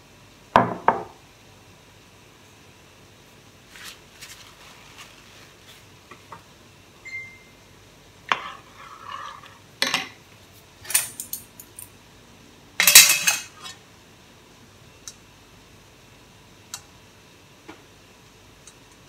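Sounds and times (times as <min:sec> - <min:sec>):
metal utensils clinking on steel tray: 0:10.8 - 0:11.9, 0:12.8 - 0:13.8.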